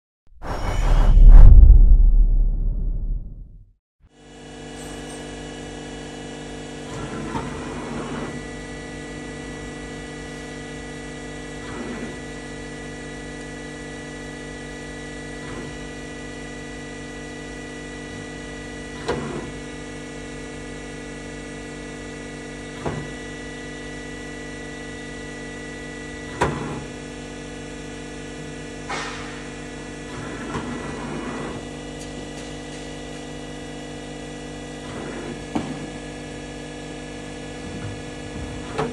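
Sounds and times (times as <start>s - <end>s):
machine hum: 0.4s - 3.6s.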